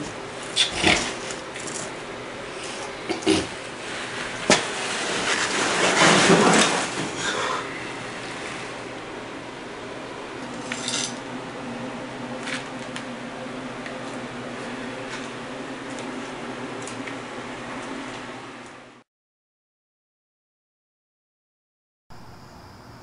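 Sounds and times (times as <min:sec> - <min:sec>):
footsteps on concrete floor: 0:13.8 - 0:17.2.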